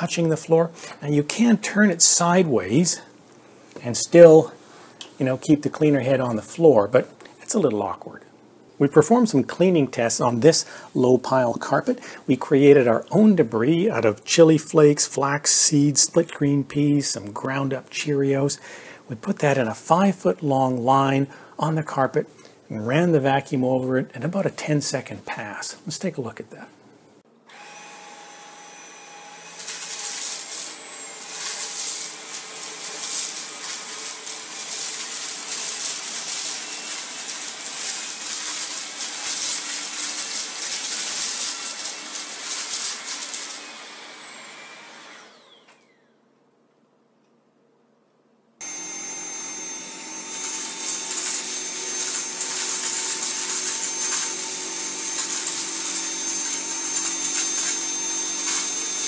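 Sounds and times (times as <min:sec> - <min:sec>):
cordless vacuum running on carpet: 0:27.6 - 0:46.0, 0:48.6 - 0:59.0
vacuum whining on low power: 0:48.6 - 0:51.8.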